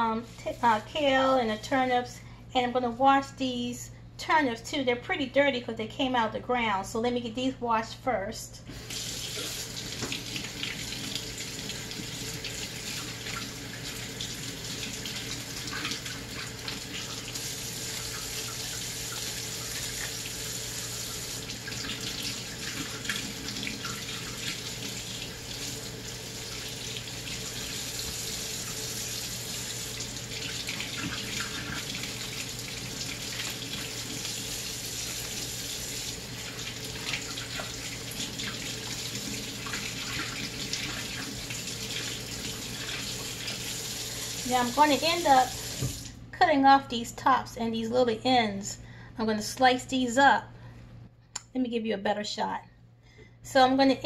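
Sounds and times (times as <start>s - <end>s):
faucet running into sink: 8.7s - 46.1s.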